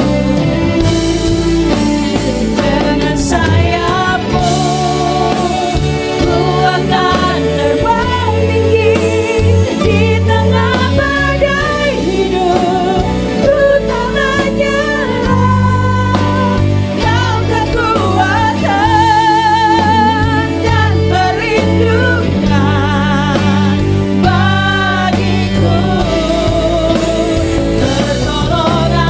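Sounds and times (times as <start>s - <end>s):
band with guitar keyboard drums: 0.0s - 29.0s
women singing together: 2.6s - 29.0s.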